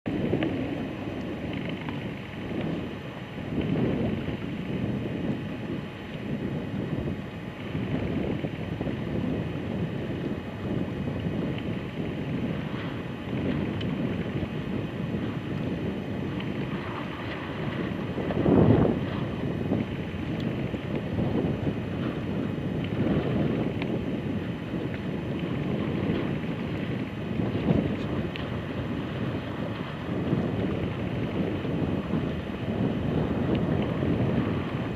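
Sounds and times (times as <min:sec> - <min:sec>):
wind buffeting microphone: 0:00.1 - 0:34.9.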